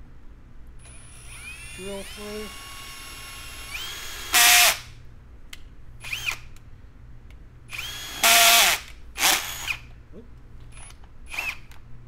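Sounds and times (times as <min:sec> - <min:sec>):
cordless drill drilling plastic: 0:00.9 - 0:04.8, 0:07.7 - 0:09.8, 0:11.3 - 0:11.7.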